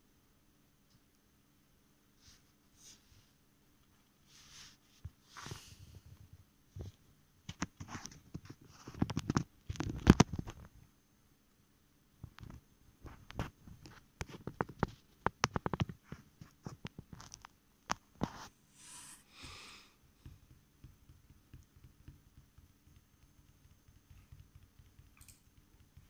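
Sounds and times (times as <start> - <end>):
short hissing rustles: 4.2 - 6.0, 18.5 - 20.0
light clicks and taps: 12.2 - 18.3, 20.2 - 26.0.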